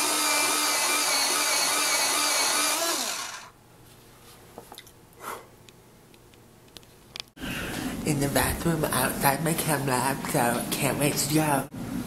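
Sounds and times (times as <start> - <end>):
electric pencil sharpener grinding: 0.0 - 3.5.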